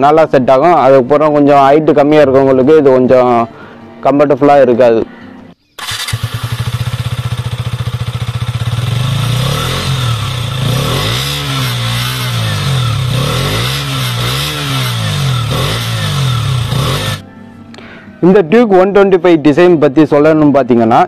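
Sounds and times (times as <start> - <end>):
motorcycle engine idling and revving: 5.8 - 17.2.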